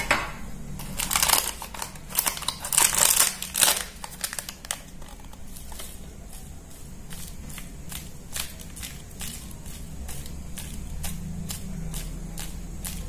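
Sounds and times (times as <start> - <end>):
plastic liner crinkling: 0.8 - 6.4.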